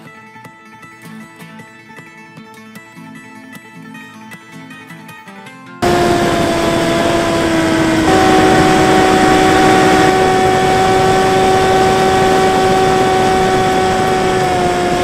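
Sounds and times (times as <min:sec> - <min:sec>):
electric propeller motor whining: 0:05.8 - 0:15.0
wind noise: 0:05.8 - 0:15.0.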